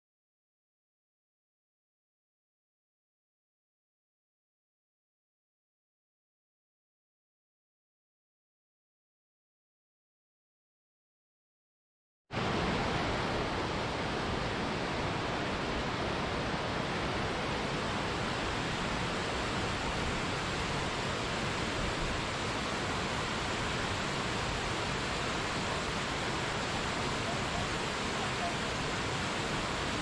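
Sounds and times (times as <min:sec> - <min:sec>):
waterfall roaring: 0:12.4 - 0:30.0.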